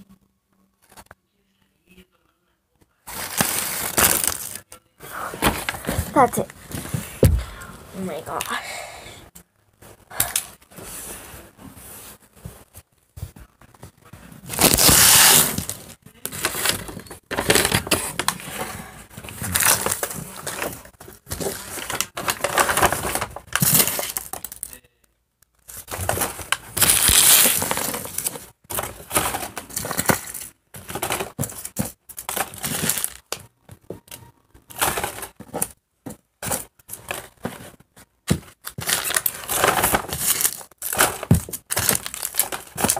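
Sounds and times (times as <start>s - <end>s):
wrappers crinkling and tearing: 3.1s - 4.7s, 14.5s - 17.9s, 19.4s - 24.8s, 25.6s - 28.4s, 31.6s - 33.4s, 38.6s - 42.9s.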